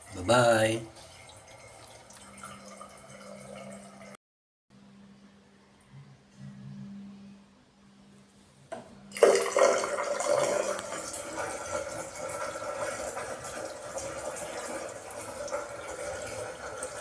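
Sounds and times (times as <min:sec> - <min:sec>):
water running into sink: 0:00.0 - 0:04.2, 0:09.2 - 0:17.0.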